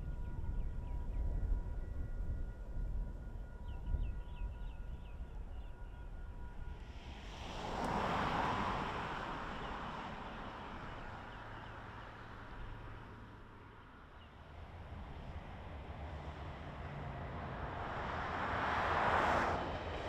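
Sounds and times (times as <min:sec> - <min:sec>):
vehicle passing: 0:07.1 - 0:13.9, 0:14.6 - 0:20.0.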